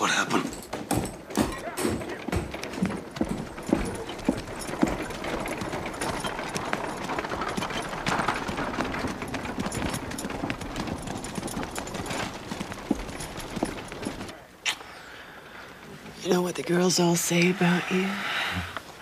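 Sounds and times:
horse hooves clip-clopping on dirt: 0.3 - 14.4.

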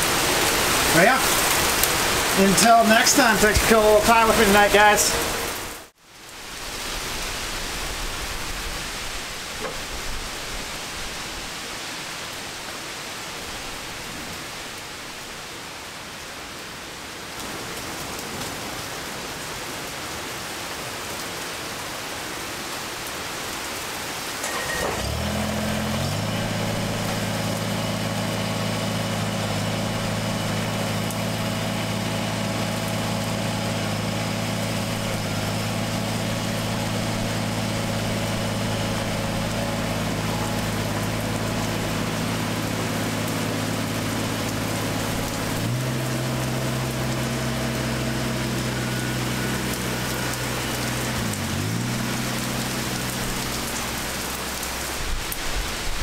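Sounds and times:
diesel tractor engine idling: 0.0 - 5.9, 24.4 - 54.9
heavy rain falling: 0.0 - 56.0.

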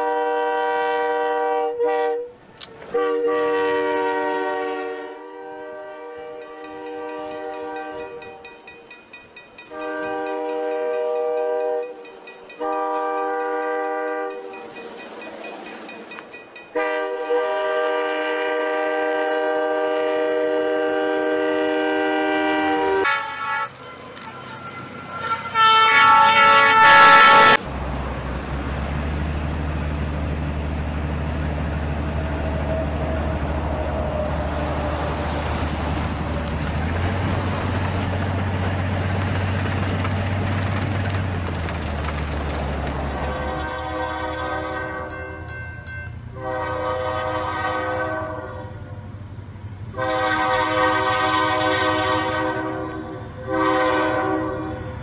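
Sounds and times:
train horn long blasts: 0.0 - 8.6, 9.7 - 14.6, 16.7 - 27.7, 32.1 - 35.5, 43.2 - 49.1, 49.9 - 55.0
locomotive low rumble: 27.6 - 55.0
snow rushing: 32.0 - 43.8.

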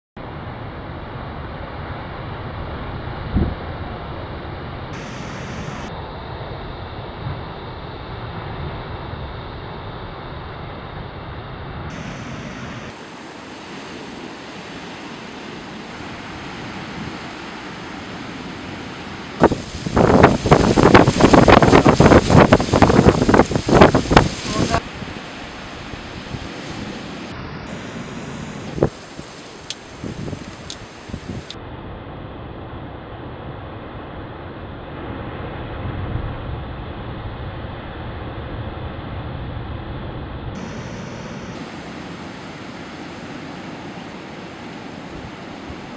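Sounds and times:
wind noise on microphone: 2.4 - 9.5, 15.9 - 31.6
loud pulsing noise: 2.5 - 45.9
ocean surf rushing: 4.9 - 6.0, 11.9 - 31.6, 40.6 - 45.9.

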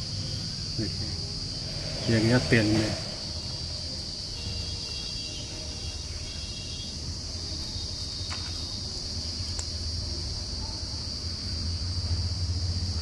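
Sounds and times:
low steady rumble: 0.0 - 4.3
crickets chirring: 0.0 - 13.0.

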